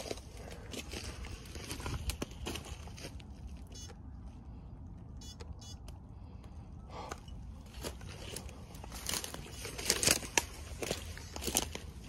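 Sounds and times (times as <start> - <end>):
footsteps crunching through dry undergrowth: 0.0 - 4.4, 7.5 - 12.0
low steady rumble: 0.0 - 12.0.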